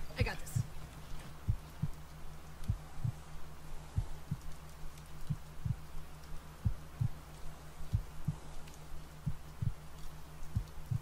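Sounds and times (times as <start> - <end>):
faint rain hiss: 0.0 - 11.0
slow heartbeat thumps: 1.3 - 2.0, 2.6 - 4.6, 5.2 - 5.9, 6.6 - 8.5, 9.2 - 9.9, 10.5 - 11.0.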